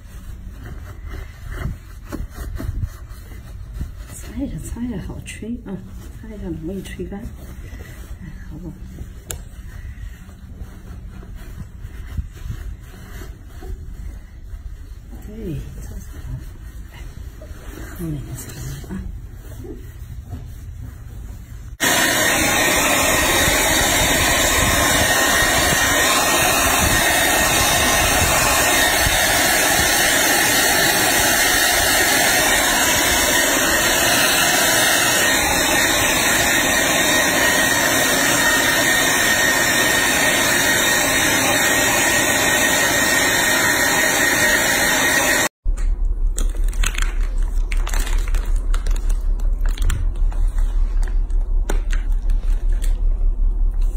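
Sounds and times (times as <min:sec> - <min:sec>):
hair dryer running: 0:21.8 - 0:45.6.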